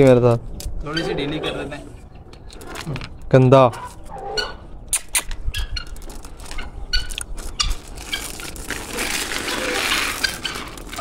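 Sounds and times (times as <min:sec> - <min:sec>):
chain scraping on concrete: 0:07.8 - 0:11.0.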